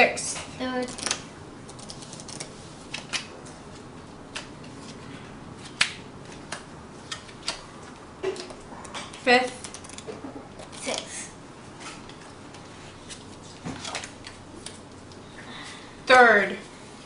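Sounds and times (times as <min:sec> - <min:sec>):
playing cards clicking and slapping: 0:00.8 - 0:03.3, 0:04.3 - 0:05.0, 0:05.6 - 0:11.1, 0:13.1 - 0:14.8.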